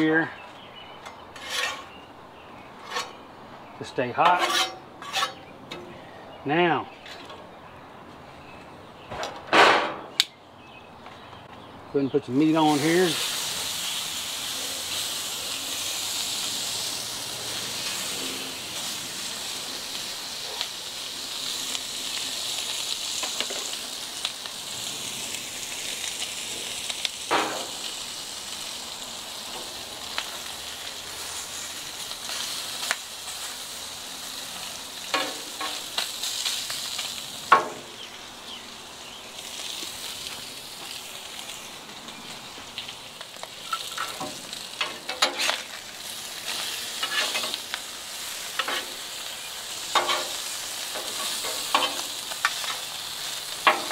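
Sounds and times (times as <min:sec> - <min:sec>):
beef sizzling on griddle: 0:12.2 - 0:53.9
metal spatulas clacking on griddle: 0:35.1 - 0:36.0, 0:43.7 - 0:45.6, 0:48.6 - 0:48.9, 0:49.9 - 0:52.9, 0:53.6 - 0:53.9.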